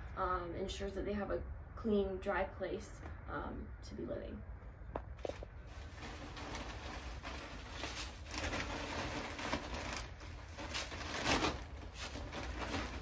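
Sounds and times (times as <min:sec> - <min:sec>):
plastic bag crinkling: 0:05.3 - 0:13.0
wood shavings rustling: 0:05.6 - 0:13.0.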